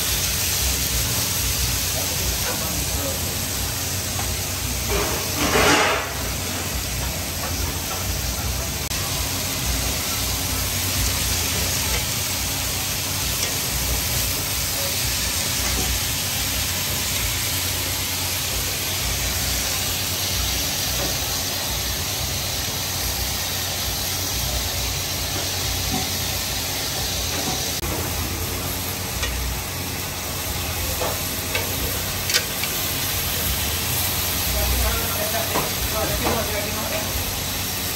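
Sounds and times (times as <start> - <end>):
meat and corn sizzling in pans: 0.0 - 37.9.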